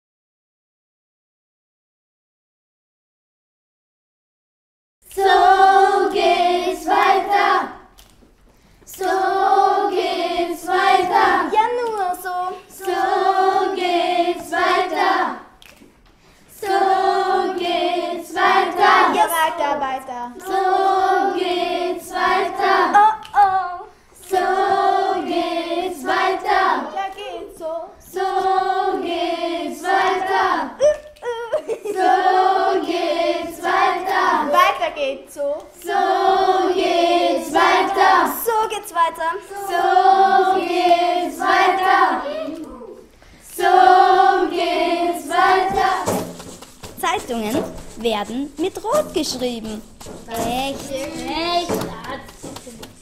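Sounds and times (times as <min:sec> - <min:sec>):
children singing together: 0:05.1 - 0:08.0, 0:08.9 - 0:15.6, 0:16.5 - 0:19.6, 0:20.3 - 0:30.8, 0:31.8 - 0:34.8, 0:35.8 - 0:46.5.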